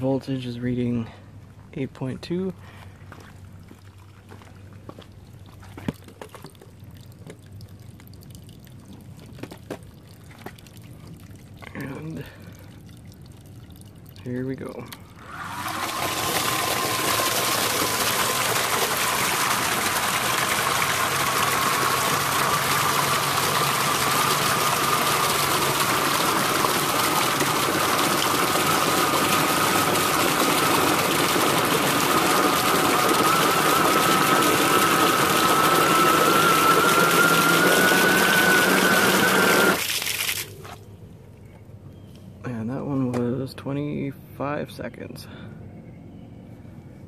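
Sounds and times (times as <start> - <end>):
water spraying: 14.2 - 40.8
electric motor whine: 15.2 - 39.8.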